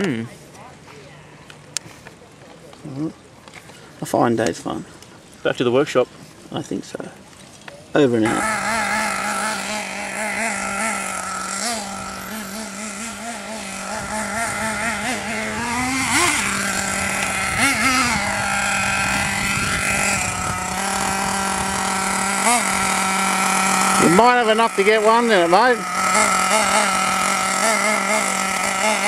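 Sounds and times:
model car engine revving: 8.0s - 29.0s.

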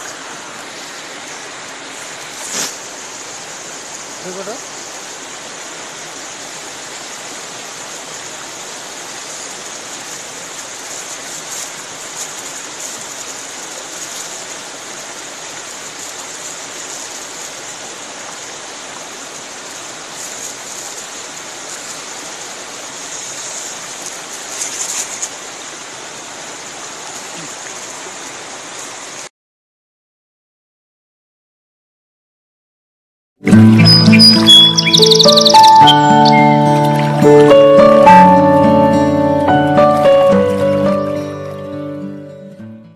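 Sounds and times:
river rushing: 0.0s - 29.3s, 33.4s - 42.4s
brief loud crackles: 2.4s - 2.8s.

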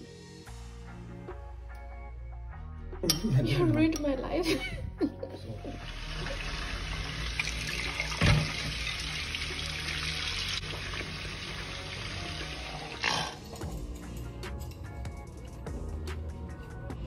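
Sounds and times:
tap water running into a sink: 5.7s - 13.4s.

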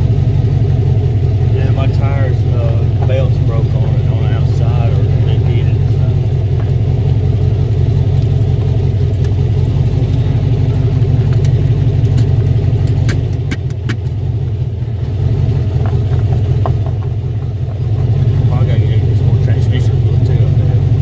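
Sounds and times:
engine and road noise in cabin: 0.0s - 21.0s
sharp rattles: 15.6s - 19.8s.

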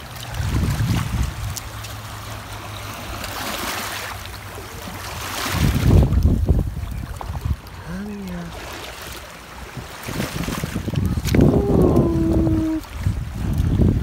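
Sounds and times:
wind buffeting microphone: 0.0s - 1.8s, 5.0s - 8.0s, 9.4s - 14.0s
small waves washing over stones: 0.0s - 14.0s.

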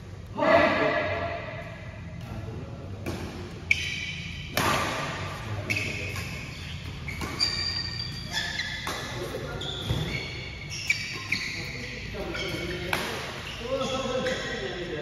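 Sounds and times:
rackets hitting shuttlecock: 3.0s - 10.2s, 12.7s - 13.4s.

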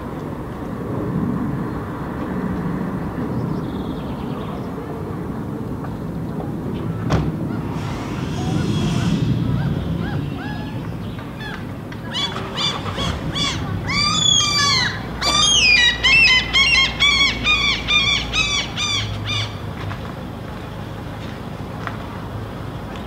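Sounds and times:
bird calling ringing notes: 8.5s - 19.6s.

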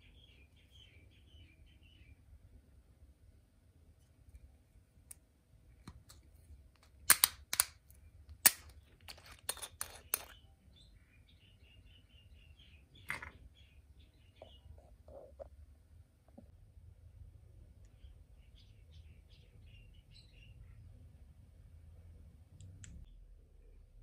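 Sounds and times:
faint bird chirping: 0.0s - 2.7s, 10.0s - 15.6s, 17.6s - 24.0s.

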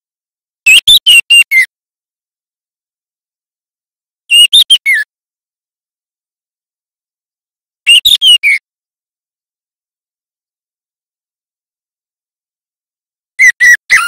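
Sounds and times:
bird whistled calls: 4.3s - 5.0s, 7.9s - 8.6s, 13.4s - 14.0s.

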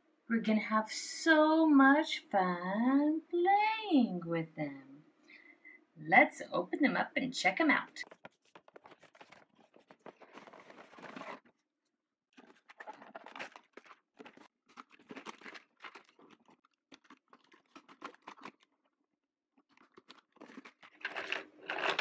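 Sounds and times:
cardboard box rustling and crinkling: 8.0s - 11.6s, 12.4s - 18.9s, 19.6s - 22.0s
plastic toys being handled: 8.0s - 11.7s, 12.3s - 22.0s.

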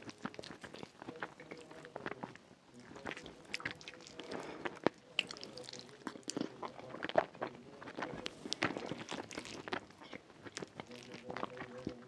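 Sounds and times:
chewing soft food: 0.0s - 12.0s.

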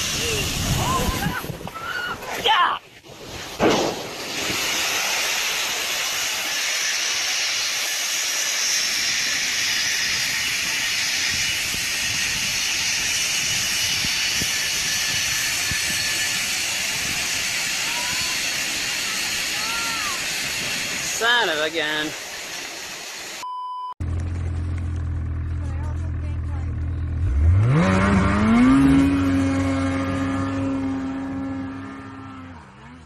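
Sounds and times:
grain pouring out hissing: 3.1s - 23.4s
short loud bang: 3.6s - 4.6s.

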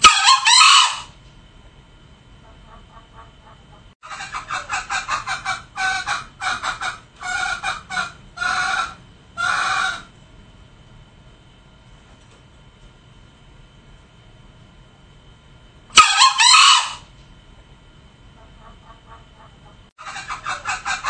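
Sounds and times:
junglefowl calling: 0.0s - 1.2s, 2.4s - 10.1s, 15.9s - 17.1s, 18.4s - 21.0s
junglefowl clucking: 0.0s - 1.2s, 2.4s - 10.1s, 15.9s - 17.1s, 18.4s - 21.0s.

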